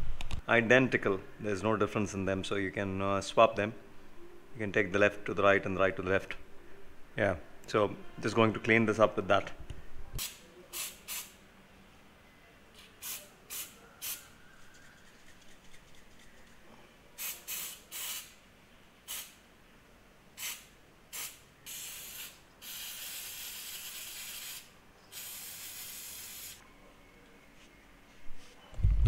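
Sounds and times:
aerosol spray hissing: 17.2s - 18.3s, 19.1s - 19.4s, 20.4s - 26.6s.

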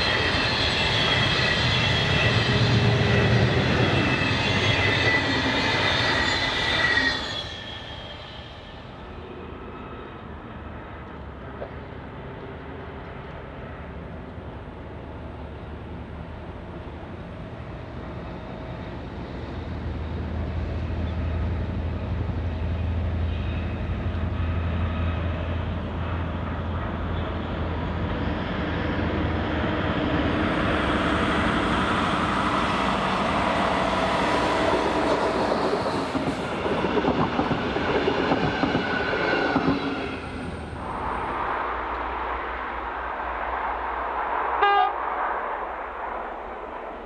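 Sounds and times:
locomotive engine drone: 0.0s - 47.0s
train wheels clattering on rails: 30.1s - 44.2s.

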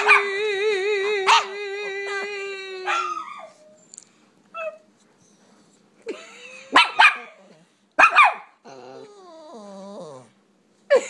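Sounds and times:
puppy whining: 4.5s - 5.8s, 8.6s - 10.4s
puppies barking: 6.7s - 8.6s.

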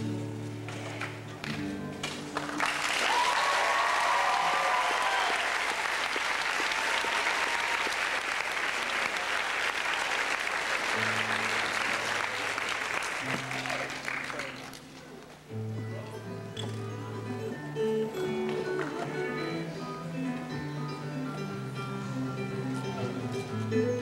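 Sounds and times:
audience applause and cheering: 2.0s - 14.8s
acoustic guitar notes: 14.8s - 24.0s.

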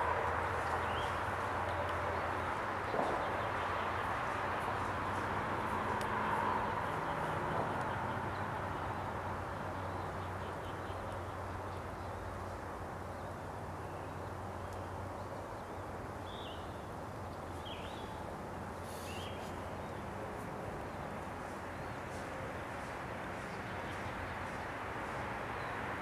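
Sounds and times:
outdoor background rumble and hiss: 0.0s - 26.0s.

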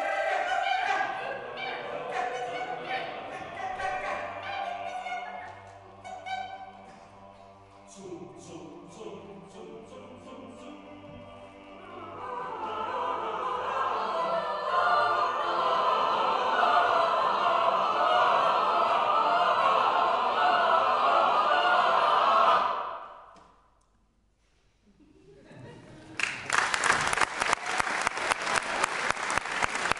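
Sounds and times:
choir singing chords: 0.0s - 23.3s.

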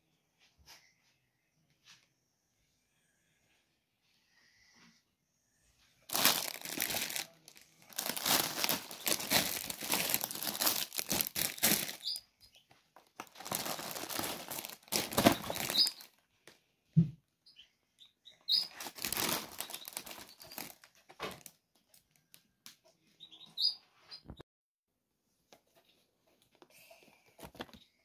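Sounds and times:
plastic packaging crinkling: 6.1s - 12.2s, 13.0s - 16.2s, 18.6s - 22.2s.

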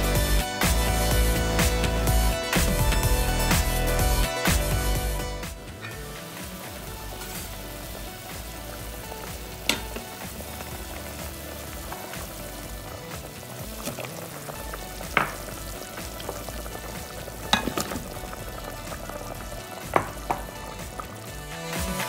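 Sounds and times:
soup boiling and bubbling: 0.0s - 22.0s
vegetables plopping into broth: 17.4s - 18.2s.

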